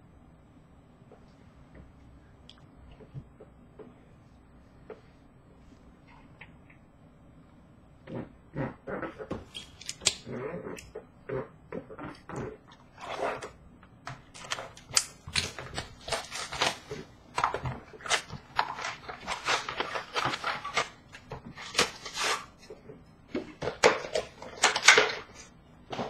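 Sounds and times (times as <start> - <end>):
wrapping and cardboard crackling: 14.2 - 22.8, 23.4 - 26.0.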